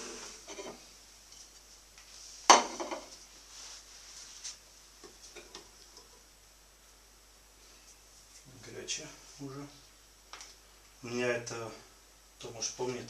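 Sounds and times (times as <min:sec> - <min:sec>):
ceramic plate set down: 0:02.5 - 0:03.1.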